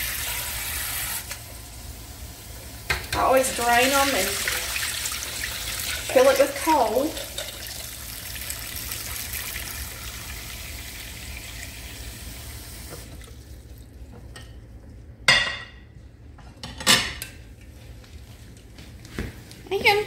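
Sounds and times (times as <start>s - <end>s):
faucet running into saucepan: 2.8s - 13.6s.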